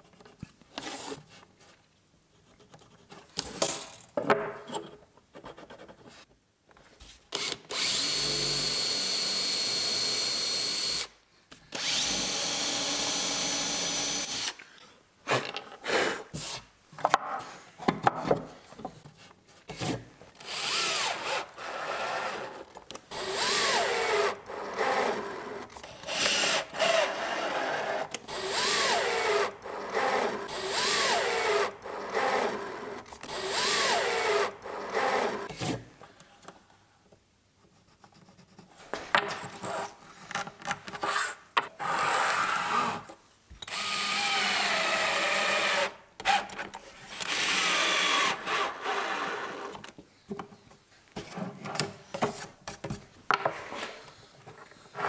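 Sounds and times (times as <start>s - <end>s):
cordless drill drilling: 7.4s - 11.1s, 11.7s - 14.6s, 20.4s - 35.5s, 43.7s - 46.5s, 47.2s - 49.7s.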